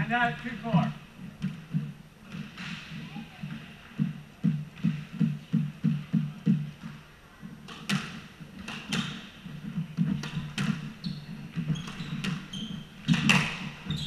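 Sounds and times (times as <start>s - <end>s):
sneakers squeaking on wooden floor: 7.6s - 14.0s
squash ball cracking off rackets: 7.6s - 14.0s
dull footfalls: 7.9s - 14.0s.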